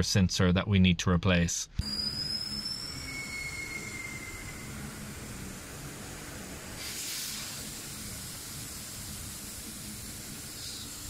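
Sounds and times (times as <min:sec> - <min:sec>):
faint steady hiss: 0:04.2 - 0:11.0.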